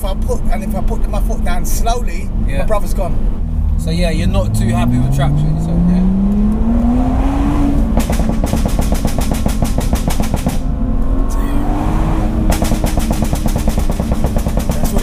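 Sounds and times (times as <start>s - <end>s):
car engine accelerating: 0.0s - 15.0s
exhaust pops and bangs: 7.6s - 10.8s, 12.3s - 15.0s.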